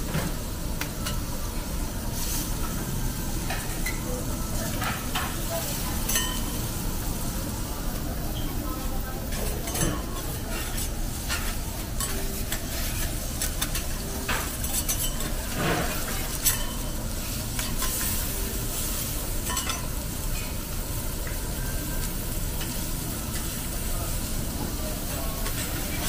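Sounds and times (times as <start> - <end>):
meat sizzling on a griddle: 0.2 - 26.0
metal spatulas scraping and tapping: 9.3 - 16.9, 17.6 - 18.3, 19.4 - 20.6.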